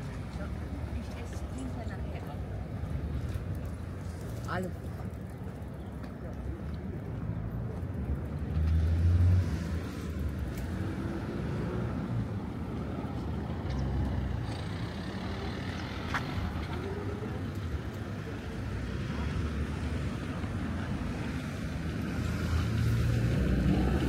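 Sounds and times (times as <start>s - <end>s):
cars driving past: 6.8s - 24.0s.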